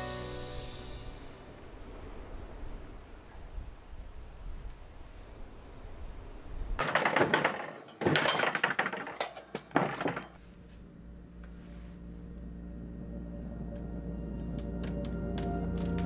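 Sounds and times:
low music drone: 0.0s - 1.8s, 10.4s - 16.0s
door rattling and clattering: 6.8s - 10.4s.

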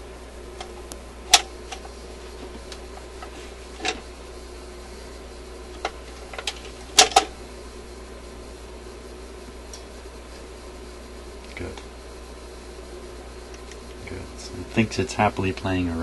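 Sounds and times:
record changer clicks and knocks: 0.6s - 4.1s, 5.7s - 7.4s.

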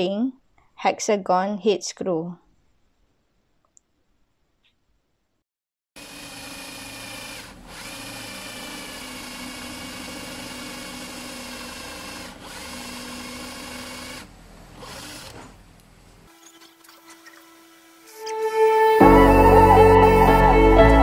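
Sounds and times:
electric drill whining: 6.0s - 15.5s.

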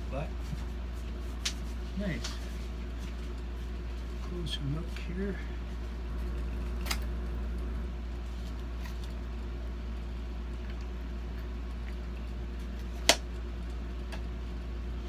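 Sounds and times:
steady low hum: 0.0s - 15.0s
rustles and clicks of handling: 0.1s - 9.4s.

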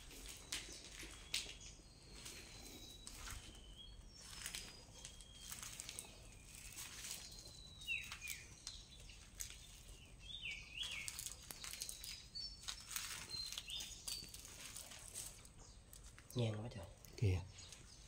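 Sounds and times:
small birds chirping: 0.0s - 18.0s
faint clicks and crackles: 4.2s - 18.0s.

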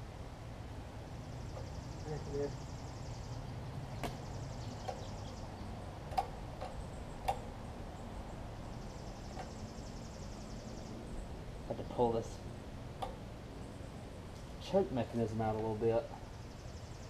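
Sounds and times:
small sharp clicks of choke linkage: 6.1s - 7.4s.

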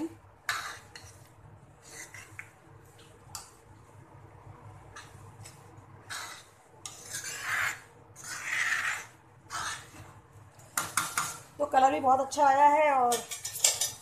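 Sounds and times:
ladle scraping metal pot: 0.4s - 2.5s, 4.9s - 11.5s, 13.1s - 14.0s.

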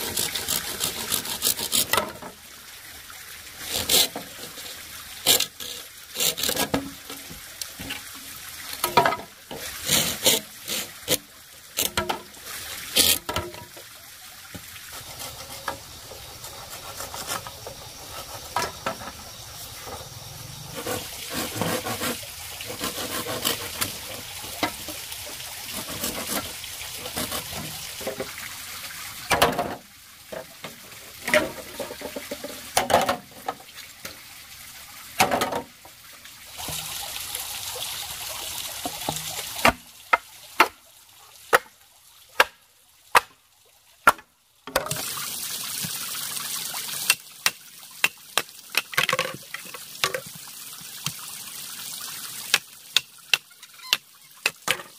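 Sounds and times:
bamboo knocks and clatters: 47.1s - 50.3s.

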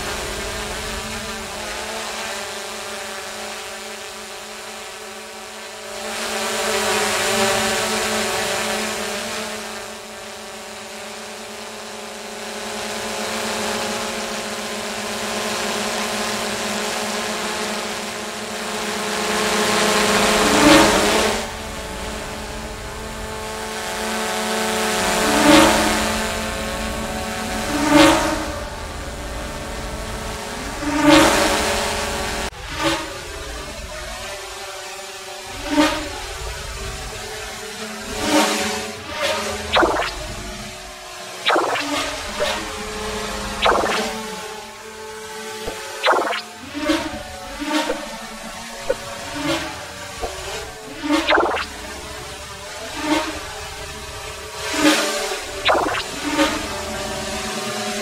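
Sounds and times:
drone propellers buzzing: 39.5s - 57.2s.

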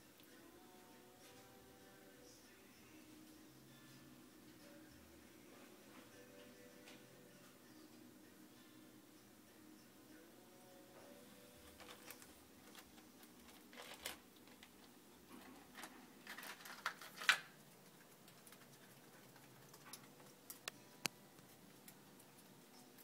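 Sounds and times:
pebbles clicking and rattling: 11.7s - 14.9s, 15.6s - 20.8s.

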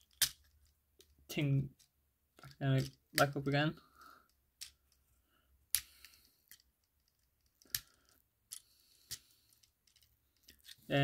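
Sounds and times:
plastic toy parts clicking: 0.0s - 1.1s.

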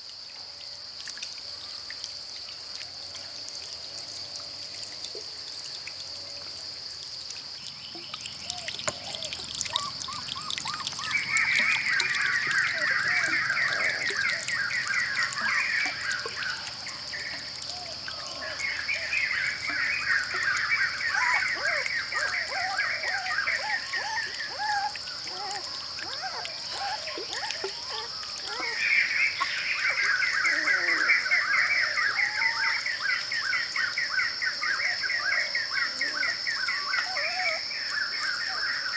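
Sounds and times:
birds singing trilled notes: 7.6s - 38.9s
bird chirps: 7.9s - 25.6s.

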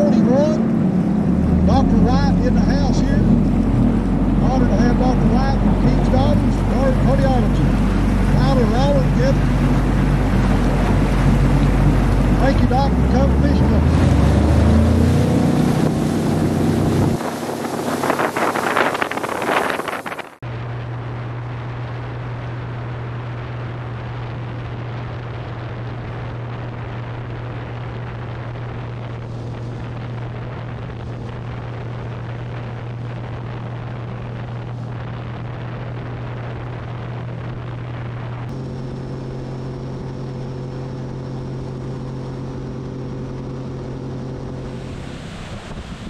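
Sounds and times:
outboard motor running: 0.0s - 46.0s
rushing water: 0.0s - 46.0s
wind on microphone: 0.0s - 46.0s.

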